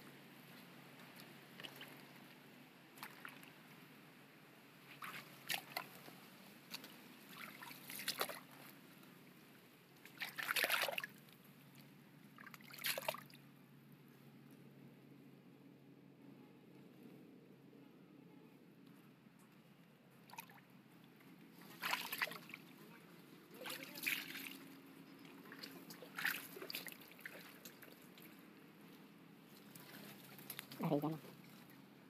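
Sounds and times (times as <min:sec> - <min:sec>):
water sloshing and splashing: 0:01.0 - 0:02.3, 0:03.0 - 0:03.6, 0:04.9 - 0:08.8, 0:10.0 - 0:13.4, 0:20.2 - 0:20.7, 0:21.6 - 0:28.4, 0:29.5 - 0:31.8.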